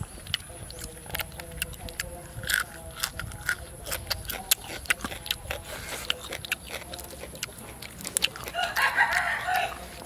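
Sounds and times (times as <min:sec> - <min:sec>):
man chewing: 0:00.0 - 0:10.0
rooster crowing: 0:08.5 - 0:09.8.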